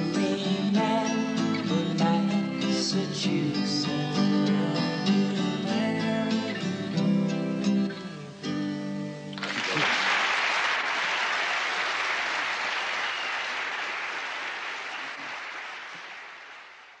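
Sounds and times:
audience applauding: 0:09.4 - 0:17.0.

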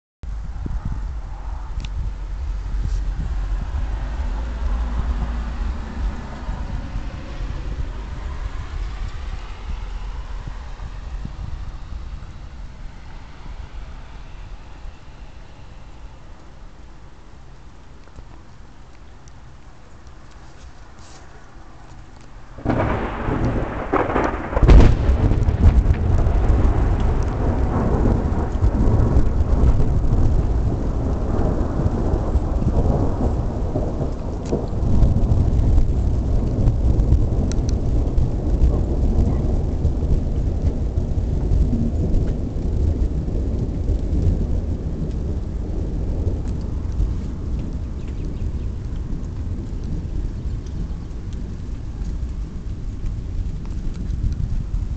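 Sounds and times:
low thunder rumble: 0:00.2 - 0:54.9
thunder cracks: 0:00.3 - 0:16.3, 0:22.2 - 0:54.9.

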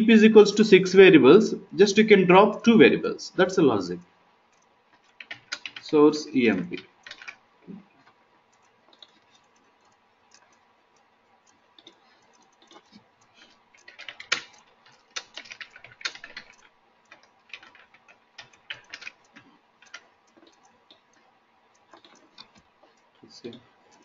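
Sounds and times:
typing on computer keyboard: 0:04.5 - 0:07.4, 0:08.0 - 0:10.6, 0:11.4 - 0:24.0.

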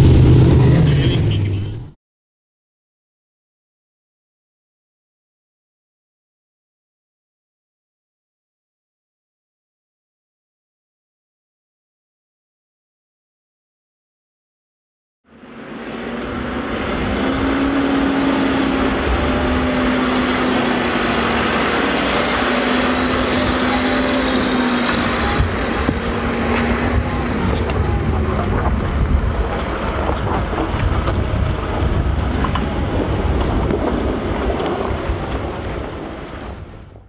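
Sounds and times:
heavy machine engine running: 0:00.0 - 0:01.9, 0:15.3 - 0:37.0
wind noise on microphone: 0:15.9 - 0:37.0.

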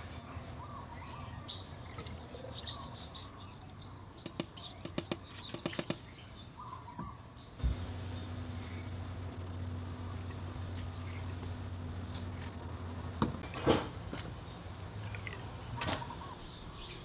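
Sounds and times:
birds chirping: 0:00.0 - 0:17.0
low steady hum: 0:07.4 - 0:17.0.

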